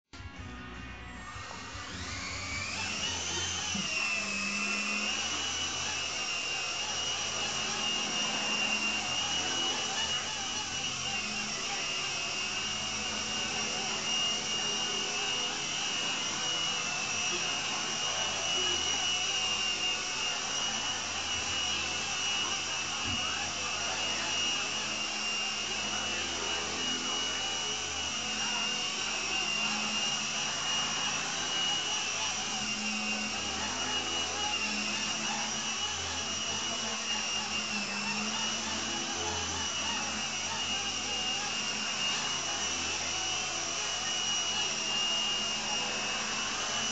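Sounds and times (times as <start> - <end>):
rc helicopter motor whine: 0.2 - 46.9.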